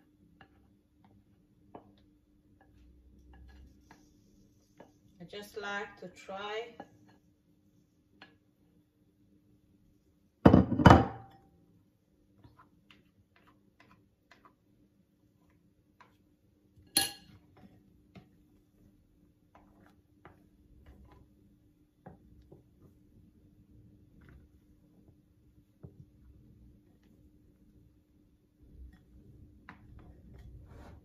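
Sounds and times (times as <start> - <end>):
utensil tapping and scraping bowl: 0.3 - 5.2, 12.4 - 23.0, 28.6 - 31.0
bowl knocking on glass bowl: 10.5 - 11.4.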